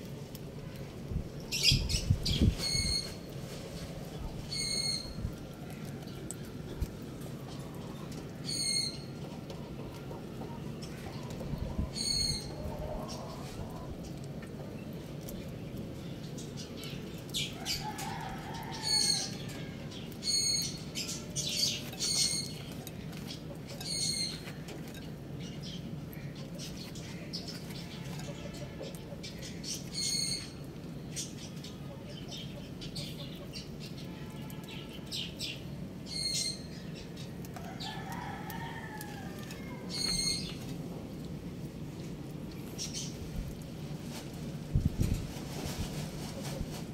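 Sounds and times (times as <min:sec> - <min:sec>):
steady low background noise: 0:00.0 - 0:46.9
soft rustle: 0:02.3 - 0:04.4, 0:42.0 - 0:46.9
distant rooster crow: 0:17.6 - 0:19.9, 0:37.6 - 0:40.4.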